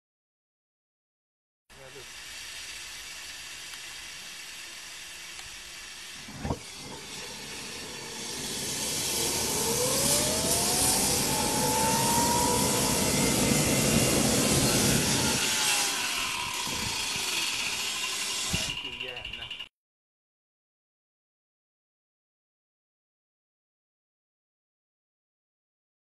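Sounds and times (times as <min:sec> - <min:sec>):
rushing air hiss: 0:01.8 - 0:18.9
jet turbine whine rising: 0:01.8 - 0:19.7.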